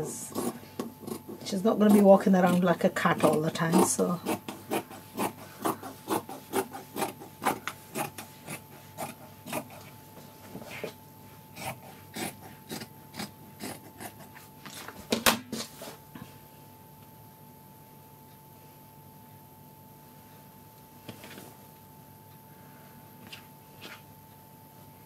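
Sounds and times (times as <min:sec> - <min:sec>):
scissors snipping fabric: 0:00.3 - 0:09.9, 0:11.6 - 0:14.4.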